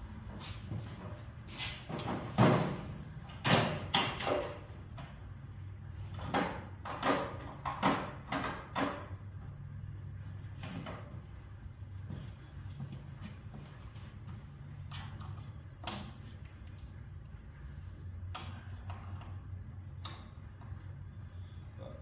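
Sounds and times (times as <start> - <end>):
steady low hum: 4.5 - 22.0.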